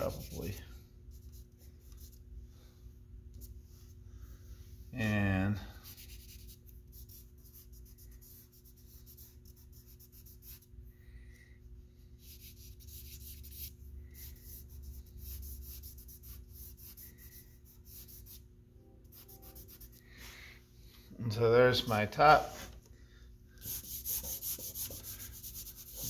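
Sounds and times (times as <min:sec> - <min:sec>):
charcoal scratching on paper: 0:00.0 - 0:02.2, 0:05.8 - 0:10.7, 0:12.2 - 0:18.4, 0:19.1 - 0:20.0, 0:23.6 - 0:26.0.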